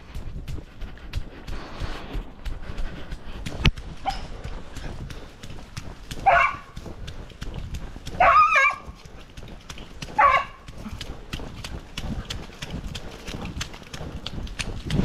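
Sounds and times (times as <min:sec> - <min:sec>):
footsteps pattering: 0:00.0 - 0:15.0
dog barking: 0:04.0 - 0:04.3, 0:06.2 - 0:06.8, 0:08.1 - 0:09.0, 0:10.1 - 0:10.7.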